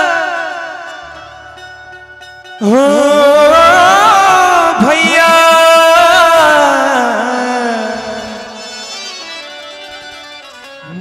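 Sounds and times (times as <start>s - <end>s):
man singing a long high note: 0.0s - 1.4s, 2.6s - 9.0s
harmonium drone: 0.0s - 11.0s.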